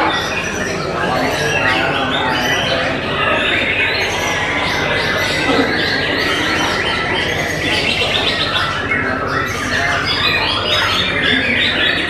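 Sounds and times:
birds singing whistles and chirps: 0.0s - 12.0s.

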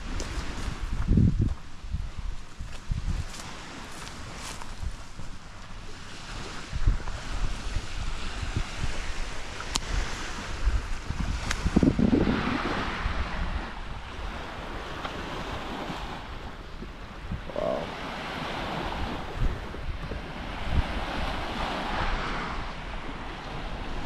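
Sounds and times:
small waves washing onto sand: 0.0s - 24.0s
wind gusting on microphone: 0.0s - 24.0s.

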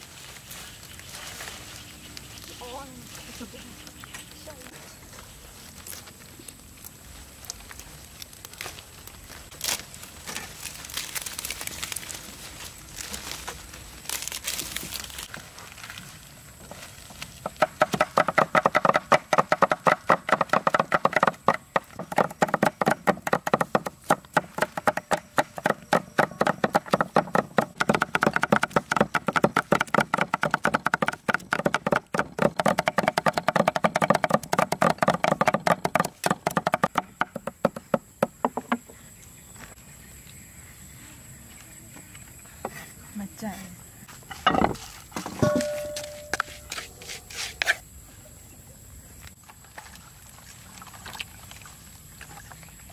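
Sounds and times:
leafy greens rustling: 0.0s - 17.7s
cleavers chopping on wooden boards: 17.4s - 39.0s.

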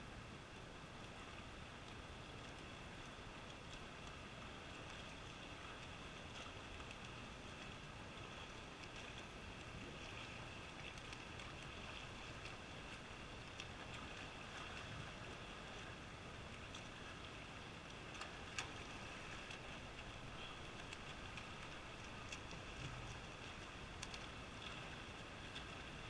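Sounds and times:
swimmers splashing: 3.6s - 26.0s.

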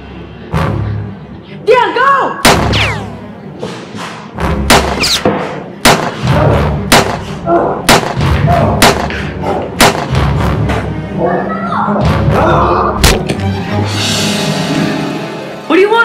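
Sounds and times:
toy blaster shots: 2.5s - 3.2s, 4.8s - 5.3s.

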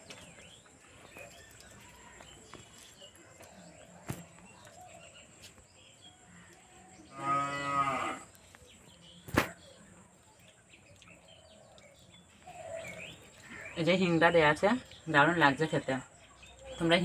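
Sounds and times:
cow mooing: 7.1s - 8.3s.

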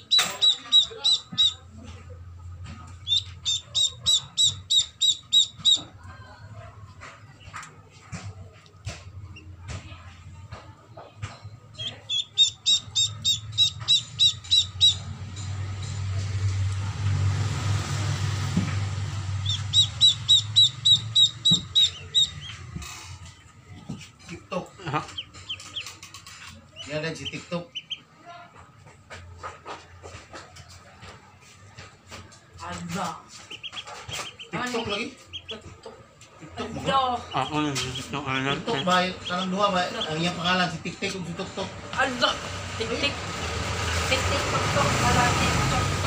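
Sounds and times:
ducklings peeping: 0.0s - 6.1s, 11.6s - 16.0s, 18.3s - 28.6s, 32.6s - 42.2s.

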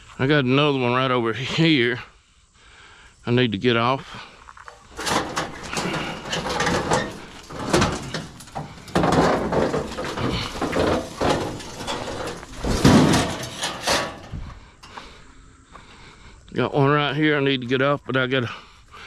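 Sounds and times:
sheet metal scraping and clanking: 4.8s - 15.0s
metal panel bangs: 5.0s - 14.4s.

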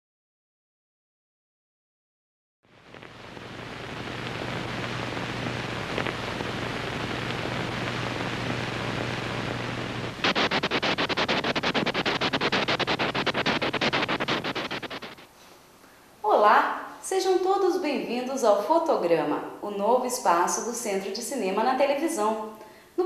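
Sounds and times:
film projector running: 10.2s - 15.2s.

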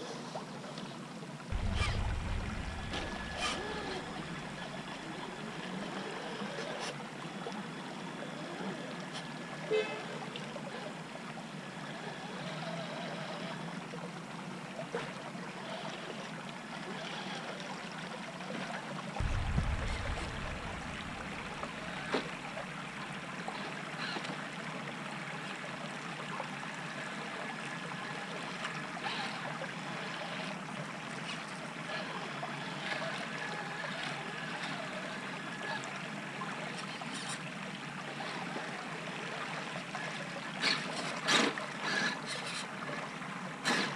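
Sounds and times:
creek water trickling over rocks: 0.0s - 43.9s
low thump: 1.6s - 5.0s, 19.2s - 22.4s.

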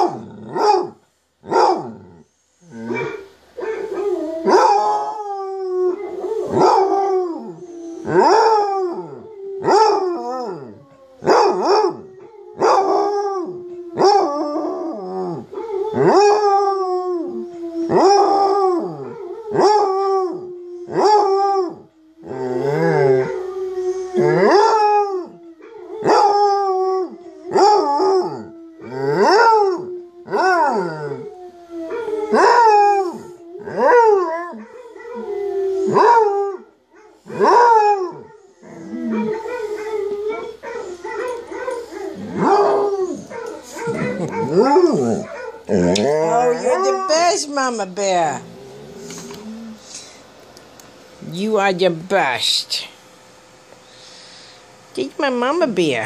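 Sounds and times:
dog howling and baying: 1.5s - 49.8s.

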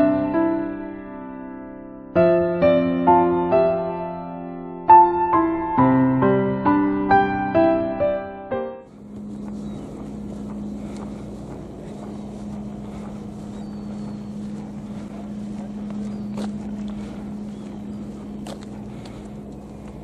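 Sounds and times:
engine running with low hum: 8.9s - 20.0s.

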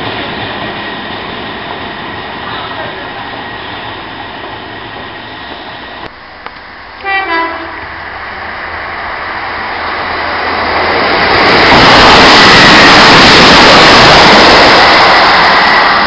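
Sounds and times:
train running noise: 0.0s - 16.0s
train horn blasts: 7.0s - 7.8s.

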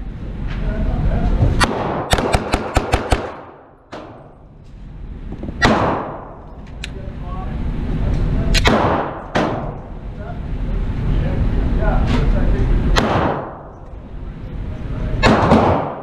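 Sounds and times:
gunshots echoing indoors: 1.6s - 4.4s, 5.6s - 6.4s, 8.5s - 9.8s, 12.9s - 13.8s, 15.2s - 16.0s.

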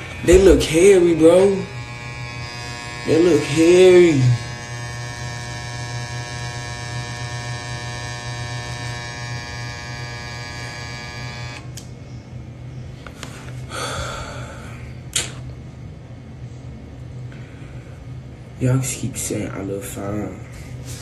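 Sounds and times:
electric hair clippers buzzing: 0.0s - 11.9s.

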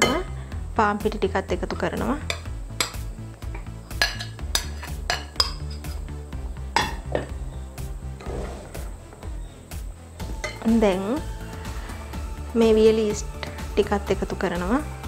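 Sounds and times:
soft background music: 0.0s - 15.0s
metal utensil clinking glass bowl: 3.9s - 6.0s.

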